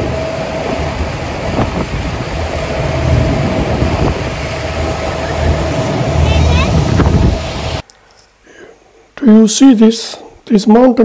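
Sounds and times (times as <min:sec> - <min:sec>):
boat engine hum: 0:00.0 - 0:07.8
wind buffeting microphone: 0:00.0 - 0:07.8.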